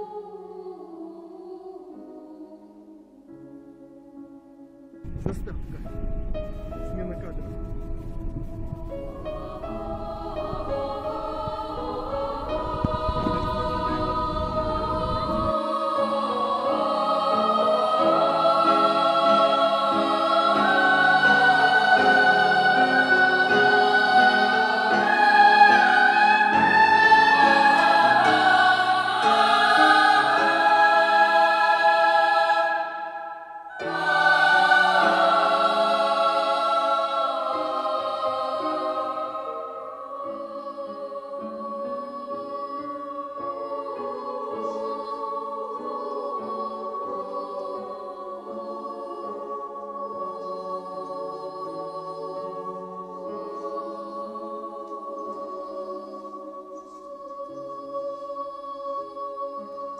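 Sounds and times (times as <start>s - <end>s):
choir singing held notes: 0.0s - 59.9s.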